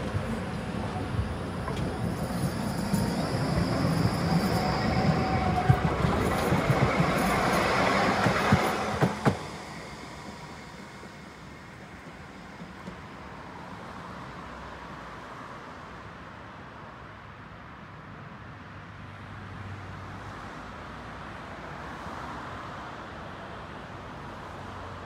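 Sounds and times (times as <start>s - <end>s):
tram wheels rumbling on rails: 0.0s - 14.0s.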